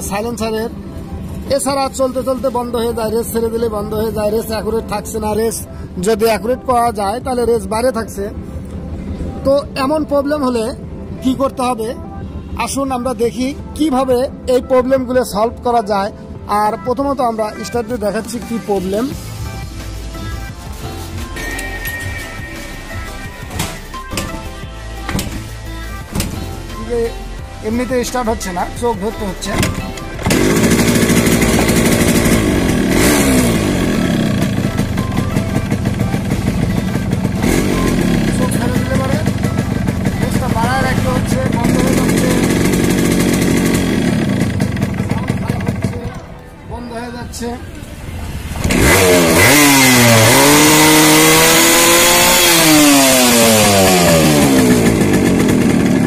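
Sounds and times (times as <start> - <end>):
motorcycle engine running and revving: 29.6 - 46.2, 48.3 - 56.0.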